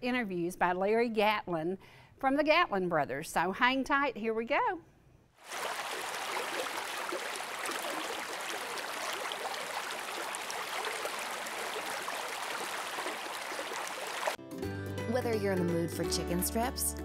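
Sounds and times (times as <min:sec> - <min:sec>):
creek rushing over rocks: 0:05.4 - 0:14.4.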